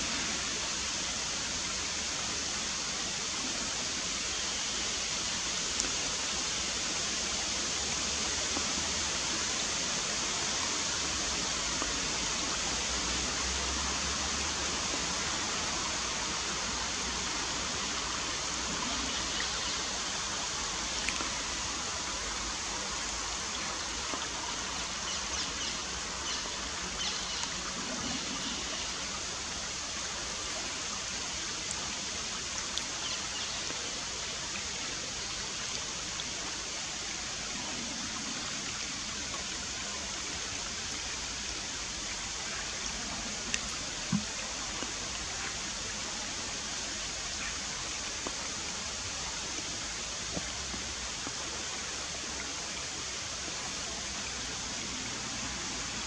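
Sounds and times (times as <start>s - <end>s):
river rushing over stones: 0.0s - 56.0s
faint light ticks: 5.7s - 6.0s, 20.9s - 21.4s, 27.0s - 27.6s, 43.4s - 45.0s.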